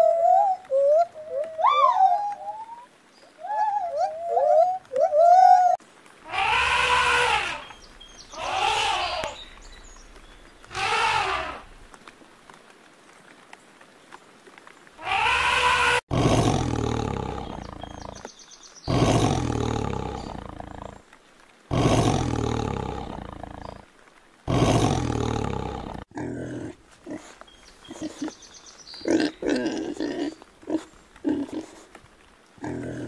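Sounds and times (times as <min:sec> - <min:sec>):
pigs grunting: 0:06.3 - 0:07.7, 0:10.7 - 0:11.7, 0:15.0 - 0:18.2, 0:18.9 - 0:21.0, 0:21.7 - 0:23.8, 0:24.5 - 0:28.3, 0:29.0 - 0:31.9
tiger roaring: 0:06.3 - 0:07.7, 0:10.7 - 0:11.7, 0:15.0 - 0:18.2, 0:18.9 - 0:21.0, 0:21.7 - 0:23.8, 0:24.5 - 0:26.8.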